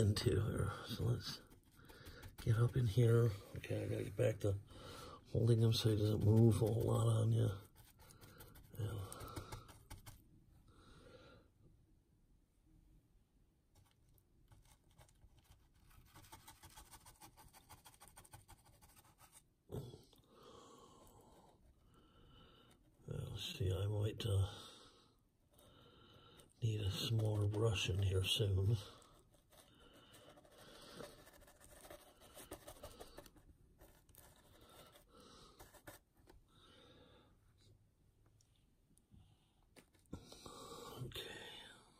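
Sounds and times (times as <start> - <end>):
paint brush scratching paste: 0.2 - 4.2, 5.6 - 10.2, 13.8 - 19.5, 26.8 - 36.3.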